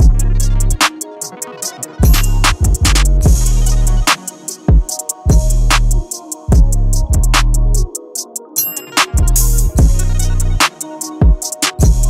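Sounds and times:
deep bass line: 0:00.0 - 0:00.8, 0:02.0 - 0:04.1, 0:05.3 - 0:07.9, 0:09.2 - 0:10.6
drum-machine beat: 0:00.0 - 0:12.0.

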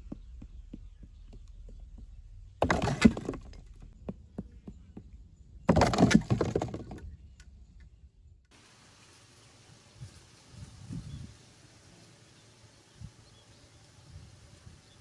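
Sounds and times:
hard lump scraping gritty ground: 0:02.5 - 0:04.0, 0:05.6 - 0:07.2.

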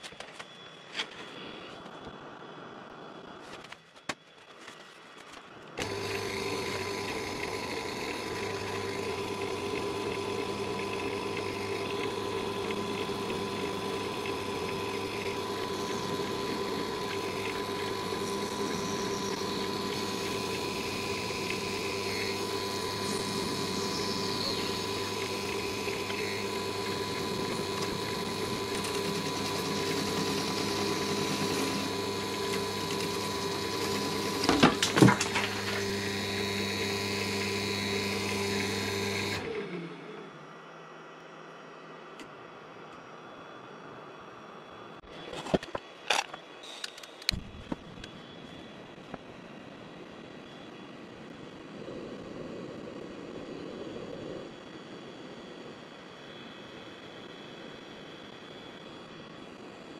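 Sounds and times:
gouge cutting wax: 0:05.8 - 0:39.4
lathe motor humming: 0:05.8 - 0:40.9.

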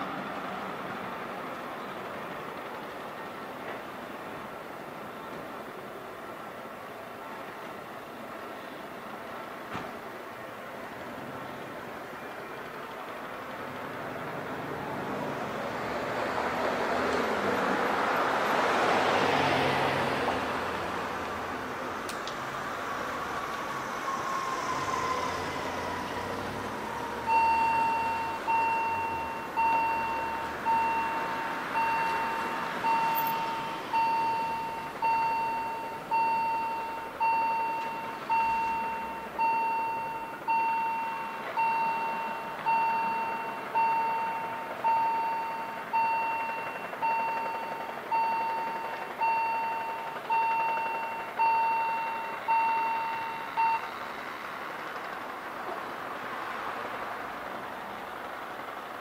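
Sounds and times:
car driving past: 0:14.2 - 0:35.2
level crossing warning bell: 0:23.3 - 0:54.4.

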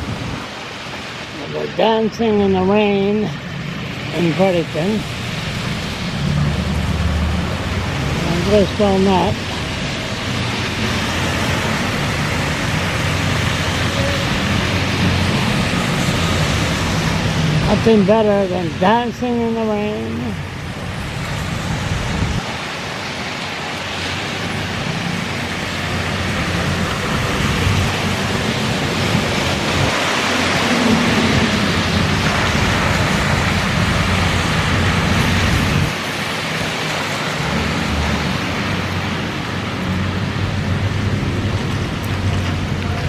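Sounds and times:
rain on wet street: 0:00.0 - 0:43.0
traffic noise: 0:00.0 - 0:43.0.

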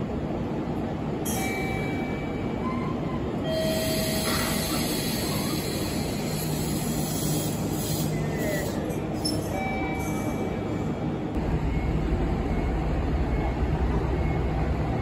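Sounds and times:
electric train low hum: 0:00.0 - 0:15.0
air hiss: 0:03.8 - 0:08.8
high-pitched wheel squeals: 0:08.0 - 0:10.4.

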